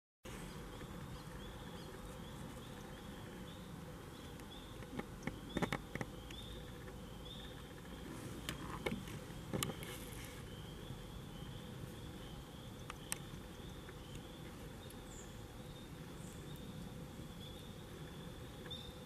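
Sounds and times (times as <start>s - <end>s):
low background noise: 0.3s - 19.0s
tree frogs peeping: 0.3s - 19.0s
sharp clicks and knocks: 4.4s - 9.9s.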